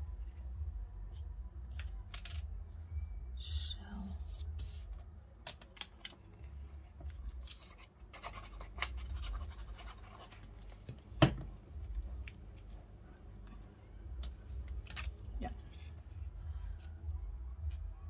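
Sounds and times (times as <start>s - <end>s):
paper rustling and scraping: 7.0s - 10.9s.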